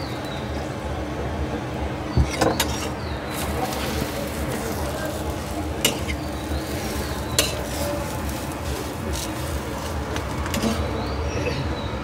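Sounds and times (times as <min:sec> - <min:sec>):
egg sizzling on a griddle: 0:03.3 - 0:10.3
metal spatula scraping and tapping: 0:05.1 - 0:10.8.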